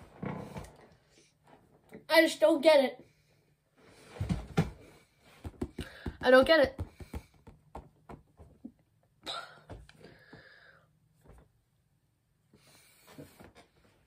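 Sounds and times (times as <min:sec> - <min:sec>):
person breathing: 0:04.9 - 0:06.2, 0:09.3 - 0:11.0.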